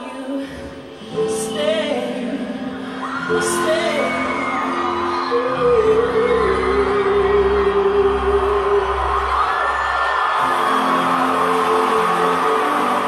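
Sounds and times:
wordless singing: 0.0 - 9.4, 10.4 - 13.0
live pop music from television: 0.0 - 13.0
crowd whooping: 3.0 - 13.0.

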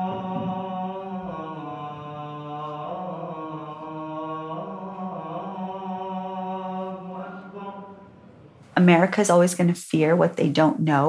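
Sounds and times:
man chanting prayer: 0.0 - 8.4.

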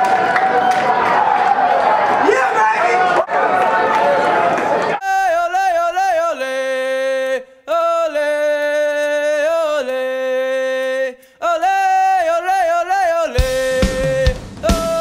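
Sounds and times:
person singing unaccompanied: 5.0 - 15.0
short breaths: 11.2 - 11.4.

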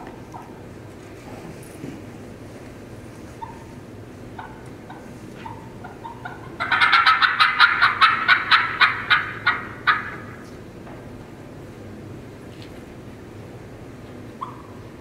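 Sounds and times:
turkey call cackling: 3.4 - 10.4, 14.4 - 15.0
turkey call yelps: 3.4 - 10.4, 14.4 - 15.0.

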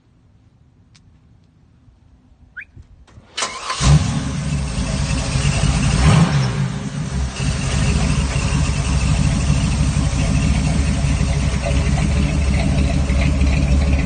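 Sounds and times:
engine starting and running: 3.1 - 14.0.

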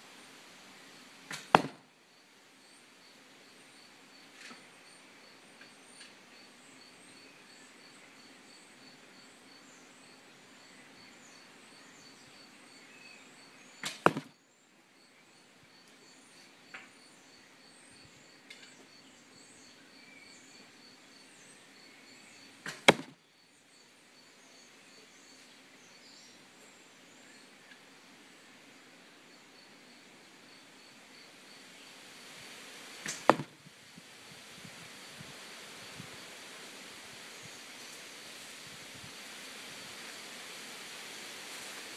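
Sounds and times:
insect chirping: 0.2 - 41.9
longbow shot cracks: 1.3 - 1.9, 13.8 - 14.3, 22.7 - 23.2, 33.0 - 33.6.

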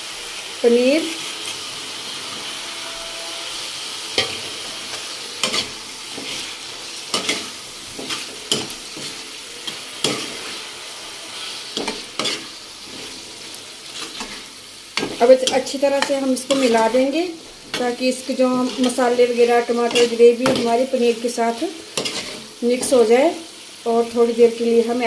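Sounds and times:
onion masala sizzling in a pan: 0.0 - 25.0
ladle clinking and scraping pan: 2.2 - 10.5, 11.8 - 13.2, 22.0 - 22.5.

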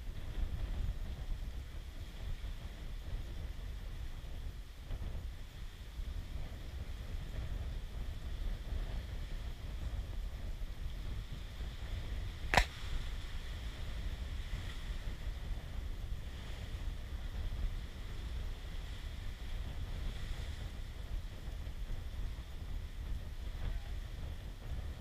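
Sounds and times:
wind rumbling on microphone: 0.0 - 25.0
sharp click: 12.5 - 12.8.

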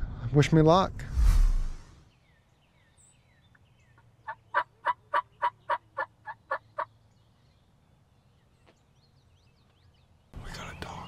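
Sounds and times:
turkey call yelps: 4.3 - 6.9.

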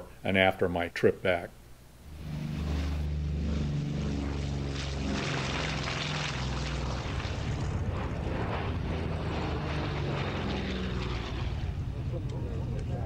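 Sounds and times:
propeller noise: 1.7 - 13.0
aircraft engine drone: 1.8 - 13.0.

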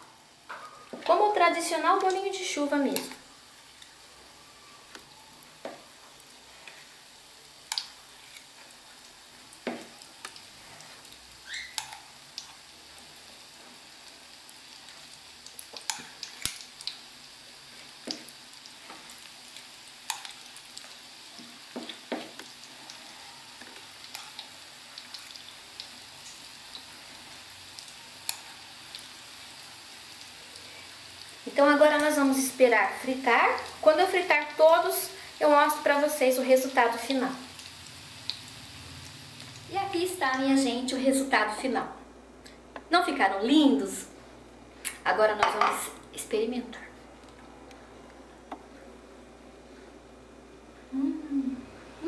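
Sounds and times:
sharp pops and clicks of frying: 0.0 - 4.1, 4.9 - 40.0, 44.8 - 46.2
fritters sizzling in hot fat: 0.0 - 41.8.

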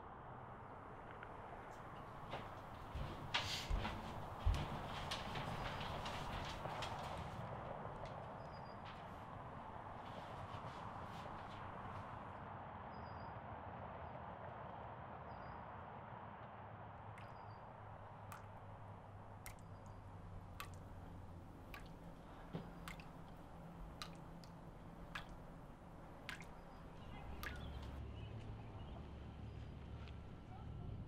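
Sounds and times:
sharp clicks or drips: 17.2 - 28.0.

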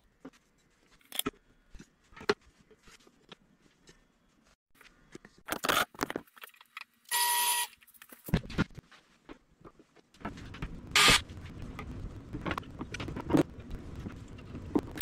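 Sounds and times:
loud steady-pitched buzz: 10.9 - 11.3.

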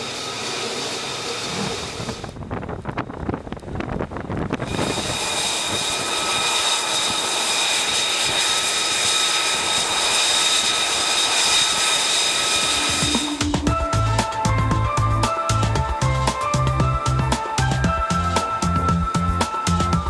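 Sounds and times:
jet engine rushing roar: 0.0 - 2.5, 4.5 - 20.0
high steady whining tones: 4.0 - 20.0.

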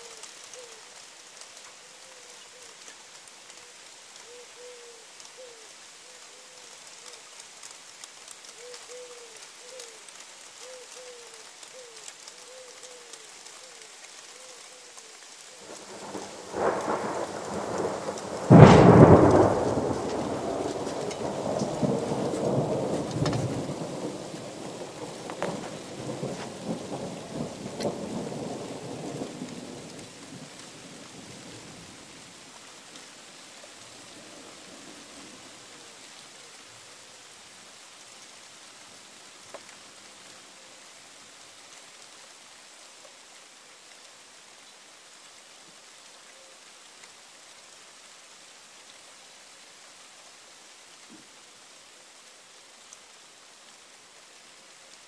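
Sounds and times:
steady rain: 0.0 - 55.0
thunder rumbling and cracking: 15.6 - 30.6.

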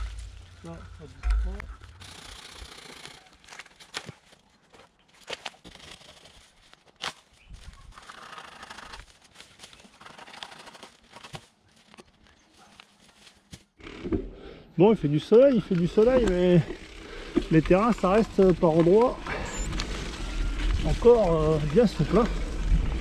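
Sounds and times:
bike knocking and rattling: 0.0 - 4.0, 15.2 - 23.0
bike tyres hissing on trail: 15.9 - 23.0.

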